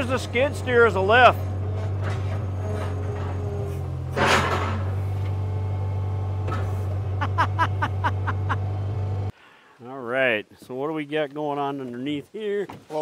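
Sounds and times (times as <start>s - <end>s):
skid steer engine running: 0.0s - 9.3s.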